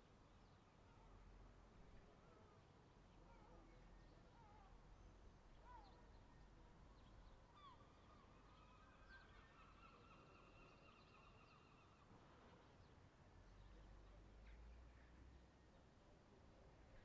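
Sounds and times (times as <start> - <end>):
bird calls: 7.6 - 12.1.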